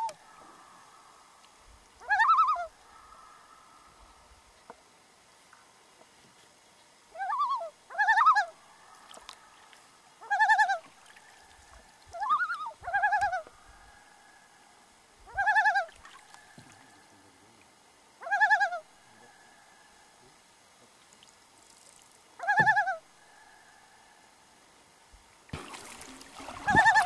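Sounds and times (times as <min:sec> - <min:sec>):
loons tremolo calls: 0:02.0 - 0:04.2, 0:10.2 - 0:14.0.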